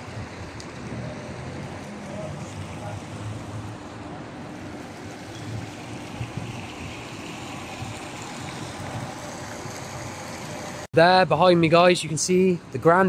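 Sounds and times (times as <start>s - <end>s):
wind on microphone: 5.0s - 10.7s.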